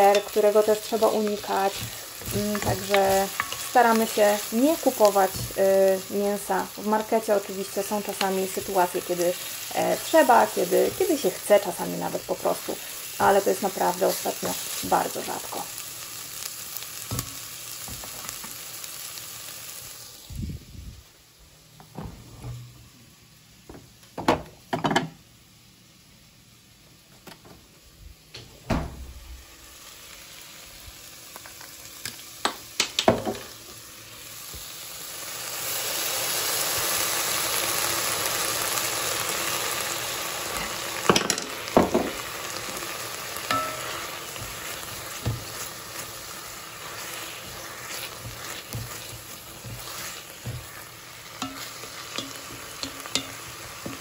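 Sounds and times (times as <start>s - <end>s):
wooden spoon stirring: 0.0s - 4.2s, 46.8s - 54.0s
onions sizzling in a pot: 0.0s - 28.2s, 29.3s - 54.0s.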